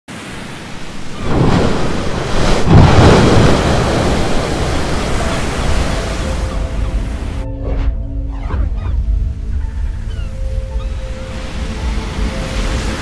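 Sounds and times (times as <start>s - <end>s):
ocean waves crashing on rocks: 0.1s - 7.4s, 10.5s - 13.0s.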